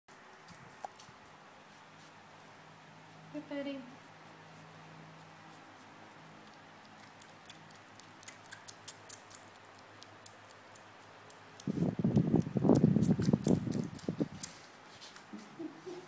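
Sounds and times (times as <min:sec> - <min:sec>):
kitten licking and smacking: 0:05.2 - 0:15.5.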